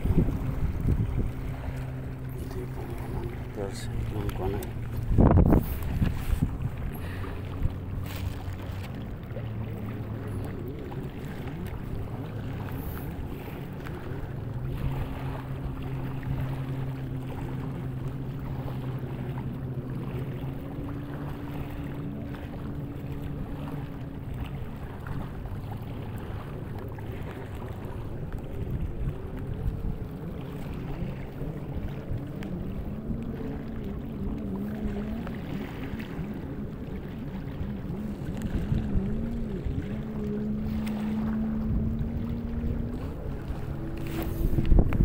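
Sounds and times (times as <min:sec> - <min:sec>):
wind noise on microphone: 0:00.0 - 0:02.1, 0:04.8 - 0:08.4, 0:37.6 - 0:45.0
motor droning: 0:00.0 - 0:45.0.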